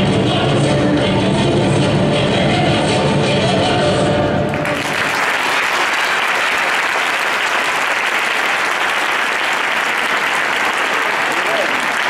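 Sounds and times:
music: 0.0 - 5.1
audience applauding: 4.5 - 12.0.

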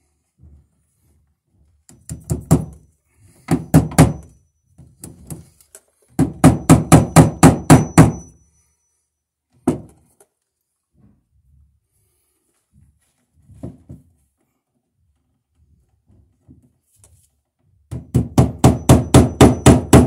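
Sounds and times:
hammer striking staples into wood: 1.9 - 2.8, 3.5 - 4.3, 6.1 - 8.3, 17.9 - 20.0.

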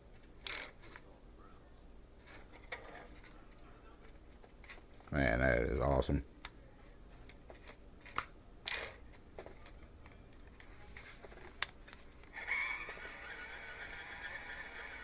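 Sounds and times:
toy truck electric motor whirring: 12.3 - 15.0.

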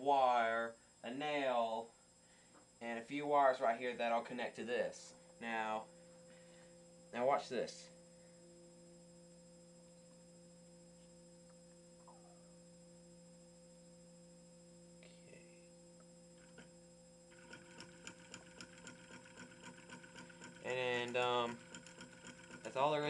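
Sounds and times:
faint steady hum: 0.0 - 23.0
motor contacts clicking rapidly: 17.3 - 23.0.

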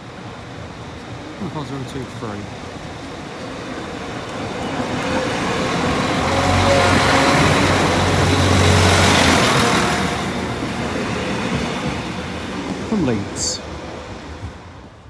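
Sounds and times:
diesel engines humming: 0.0 - 13.6
train wheels on rails: 0.0 - 15.0.

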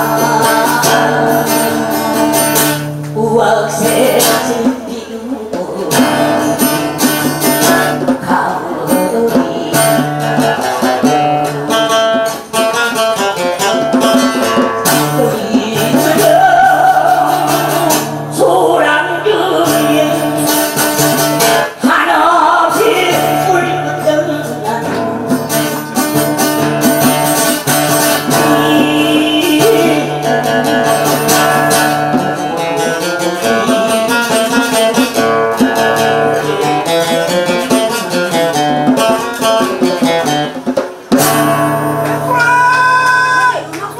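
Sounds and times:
person singing: 0.0 - 12.1, 14.4 - 20.8, 21.4 - 25.5, 27.9 - 40.1
acoustic guitar strumming: 0.0 - 43.9
djembe hand drumming: 0.0 - 43.9.

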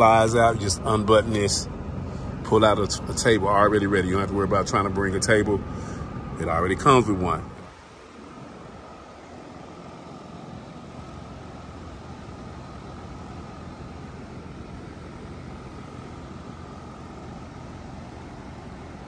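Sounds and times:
high-pitched hum: 0.0 - 19.0.

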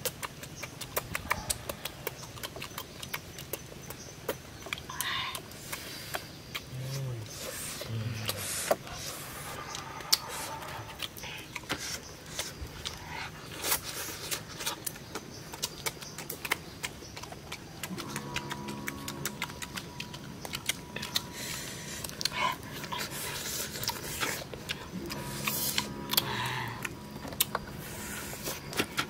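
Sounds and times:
mouth clicks and lip smacks: 0.0 - 9.0, 13.6 - 24.9.

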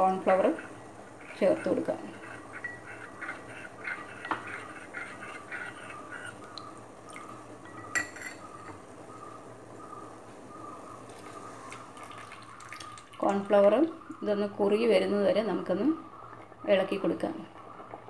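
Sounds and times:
liquid boiling with bubbles popping: 0.0 - 9.0, 10.8 - 14.2.

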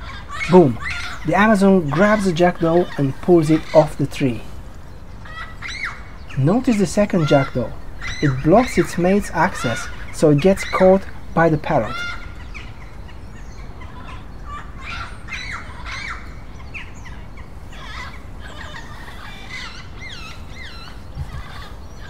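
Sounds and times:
parrots squawking: 0.0 - 22.0.

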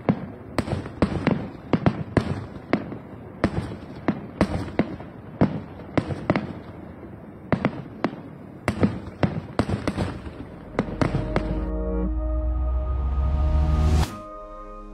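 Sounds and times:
fireworks bangs: 0.0 - 11.8.

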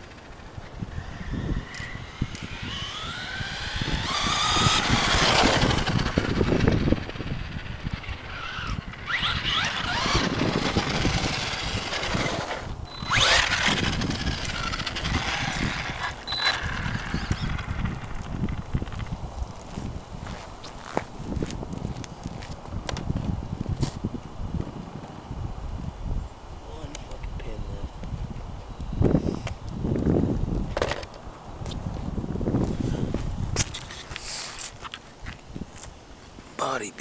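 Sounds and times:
electric motor whining: 0.0 - 19.0.

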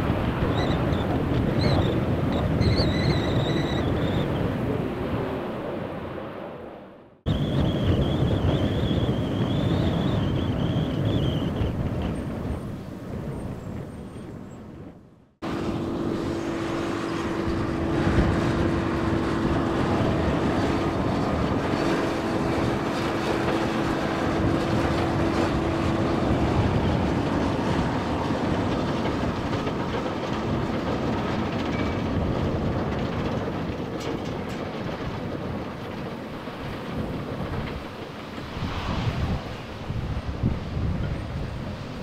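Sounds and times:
constant hum: 15.4 - 42.0
jet engine rushing: 36.4 - 42.0.

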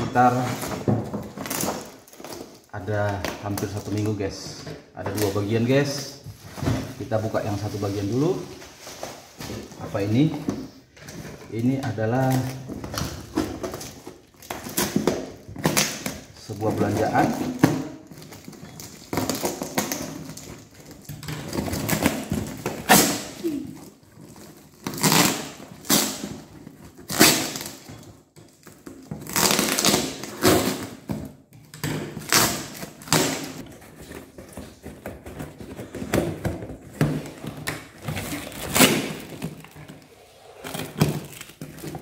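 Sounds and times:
tape and plastic ripping: 12.1 - 34.8, 37.0 - 42.0.

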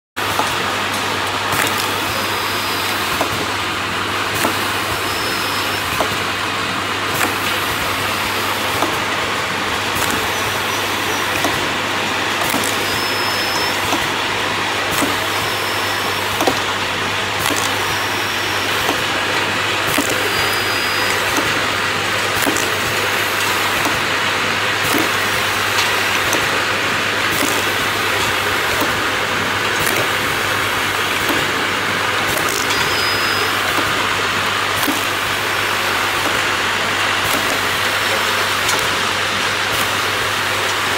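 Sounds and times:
machine whirring over hum: 0.2 - 40.9
high machine squeaks: 5.0 - 5.9, 12.5 - 14.0, 15.0 - 16.4, 17.5 - 19.1, 20.0 - 21.6, 32.5 - 33.7
machine light clicks: 9.9 - 14.2, 14.9 - 15.6, 17.4 - 19.1, 19.8 - 24.1, 24.8 - 26.6, 27.3 - 29.0, 32.3 - 34.0, 37.3 - 39.0.

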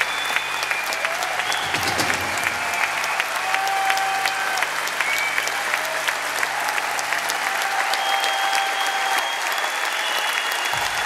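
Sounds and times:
whistles: 0.0 - 4.2, 4.8 - 5.8, 7.9 - 11.0
audience applauding: 0.0 - 11.0.

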